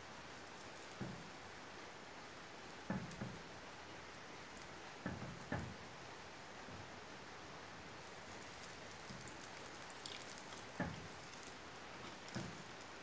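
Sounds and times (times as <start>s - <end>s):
hot oil sizzling: 8.0s - 13.0s.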